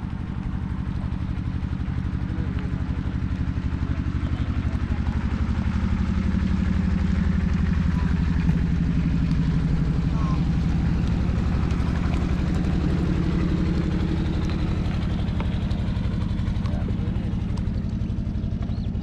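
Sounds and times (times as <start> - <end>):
small boat engine running: 0.0 - 19.0.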